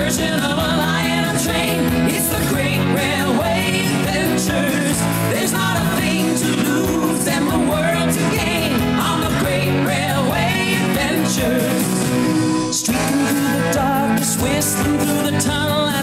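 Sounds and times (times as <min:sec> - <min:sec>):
song with singing voice and beat: 0:00.0 - 0:16.0.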